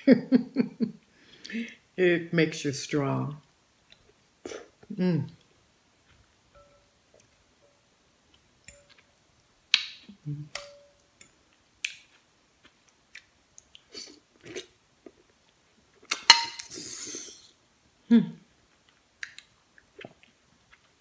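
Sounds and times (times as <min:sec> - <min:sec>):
fork clinking on glass dishes: 0:06.6 - 0:06.9, 0:08.7 - 0:09.0, 0:10.6 - 0:11.0, 0:16.2 - 0:16.7
chewing: 0:18.8 - 0:21.0.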